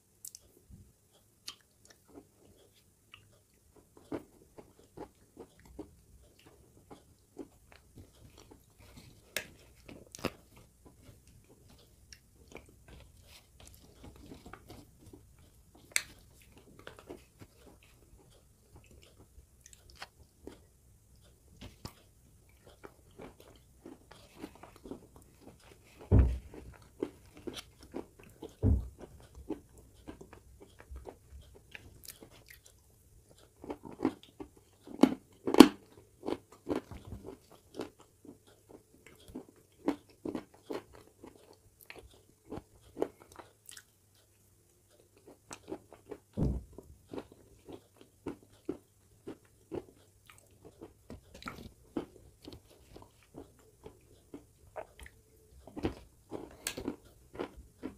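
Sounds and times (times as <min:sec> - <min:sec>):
chewing and crunching clay: 0:01.4 - 0:57.9
heavy thumps: 0:26.1 - 0:26.5, 0:28.6 - 0:29.0, 0:46.4 - 0:46.8.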